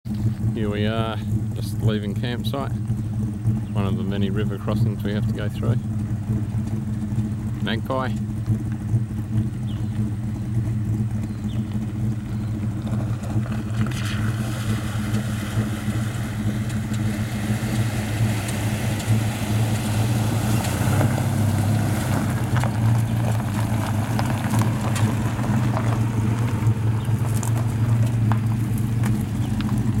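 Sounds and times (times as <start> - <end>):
engine running at low revs: 0.0 - 30.0
stones crunching under tyres: 4.6 - 30.0
water splashing: 12.7 - 30.0.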